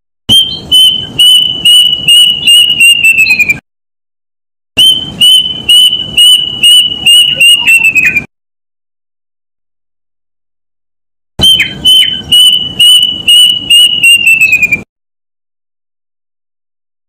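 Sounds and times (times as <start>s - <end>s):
bird whistled song: 0.3s - 3.6s, 4.8s - 8.3s, 11.4s - 14.9s.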